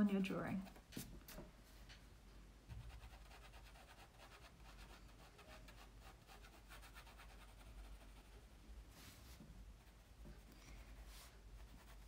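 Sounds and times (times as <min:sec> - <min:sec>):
pencil scratching on paper: 0:02.8 - 0:08.4, 0:10.9 - 0:12.0.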